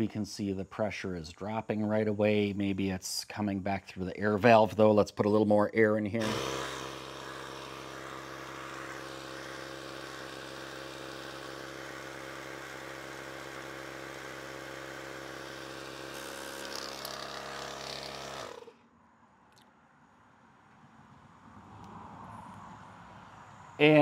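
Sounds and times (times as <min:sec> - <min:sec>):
tire inflator motor humming: 0:06.2 - 0:18.8.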